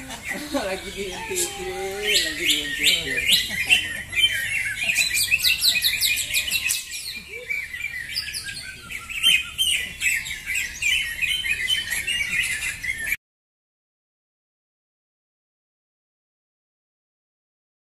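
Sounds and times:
birds singing chirps and trills: 0.0s - 13.2s.

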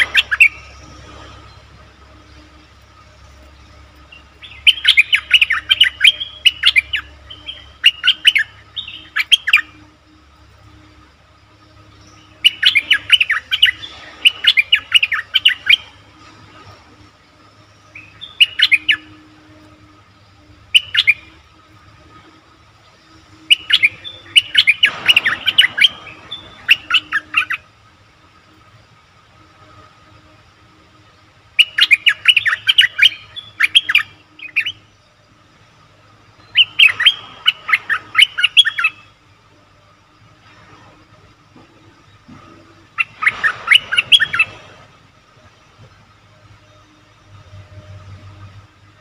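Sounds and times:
bird rapid chirping calls: 0.0s - 1.7s, 3.1s - 9.9s, 11.8s - 16.0s, 17.8s - 19.3s, 20.6s - 21.4s, 23.4s - 27.7s, 31.5s - 34.9s, 36.4s - 39.2s, 42.8s - 44.8s.

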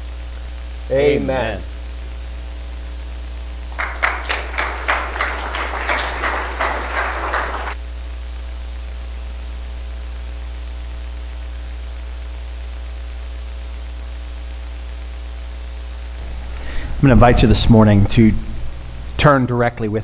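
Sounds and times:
electrical hum and hiss: 0.0s - 20.0s
congregation applauding: 3.7s - 7.8s
single person clapping: 3.8s - 7.8s.

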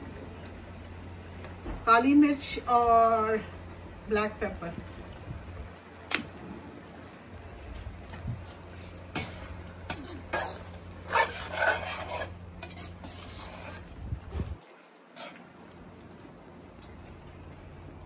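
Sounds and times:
steady low hum: 0.0s - 14.6s, 15.3s - 18.0s
food sizzling: 0.0s - 17.2s
metal spoon scraping a wok: 9.1s - 13.9s, 15.2s - 15.4s.

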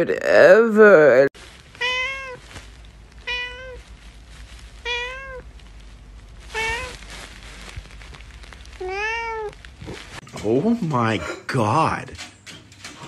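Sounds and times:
cat meowing: 1.8s - 2.5s, 3.2s - 3.8s, 4.8s - 5.5s, 6.4s - 7.1s, 8.8s - 9.6s.

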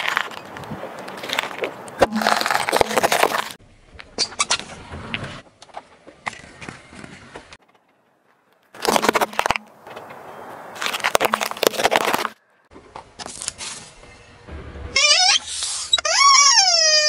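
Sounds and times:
tyre crushing radishes: 0.0s - 3.6s, 8.7s - 9.7s, 10.8s - 12.4s.

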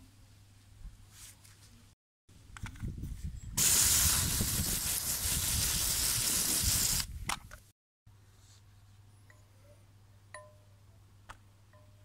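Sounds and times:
hose water jet spraying on metal: 3.6s - 7.1s.

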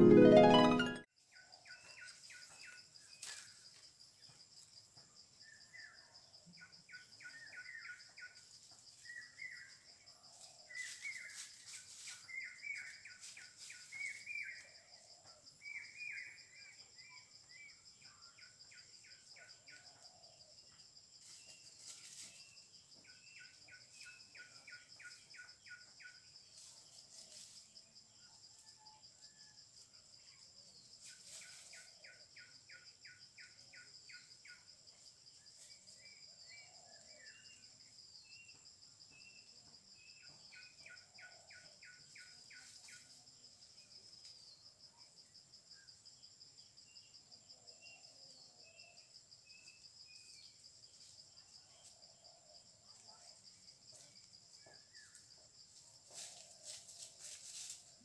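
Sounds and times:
high-pitched insect whine: 21.2s - 27.8s, 30.8s - 34.6s, 56.1s - 58.0s.

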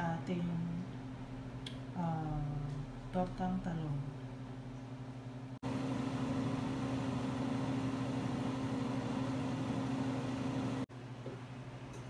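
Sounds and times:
room hum: 0.0s - 12.0s
gas stove flame hissing: 5.7s - 10.9s.

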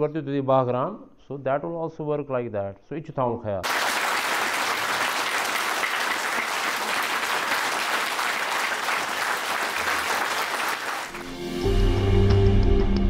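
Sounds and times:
large audience applauding: 3.6s - 11.5s.

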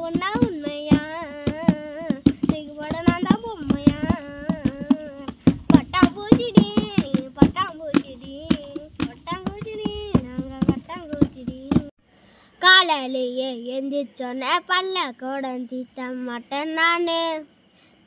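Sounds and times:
child singing: 0.0s - 11.9s, 12.6s - 17.5s
hand taps on hard surface: 0.1s - 11.9s.

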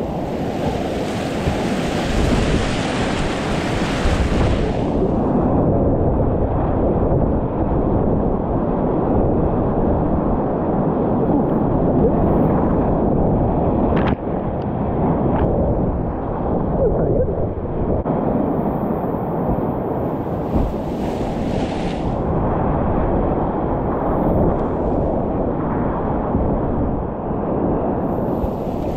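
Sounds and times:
rushing river water: 0.0s - 5.0s.

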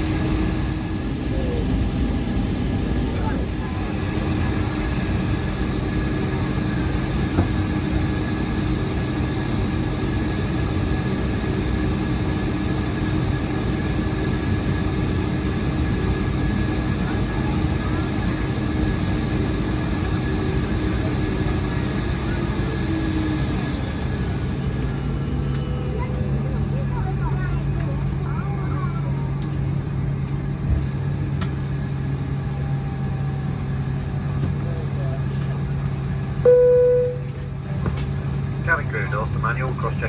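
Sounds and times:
jet engines idling: 0.0s - 40.0s
faint steady whines: 30.2s - 40.0s
low hum: 36.4s - 37.8s.

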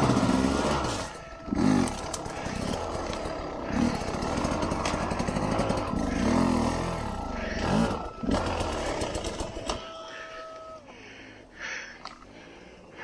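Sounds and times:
dirt bike engine revving: 0.0s - 9.8s.

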